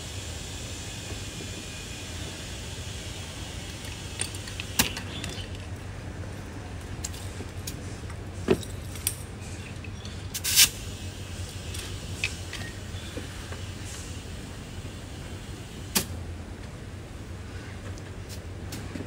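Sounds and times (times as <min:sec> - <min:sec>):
tools clattering: 0:03.6 - 0:07.4, 0:08.4 - 0:10.6.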